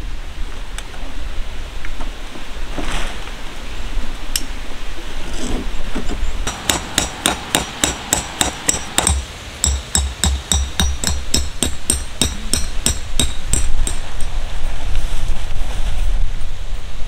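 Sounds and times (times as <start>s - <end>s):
hammer striking metal tent peg: 6.5s - 14.1s.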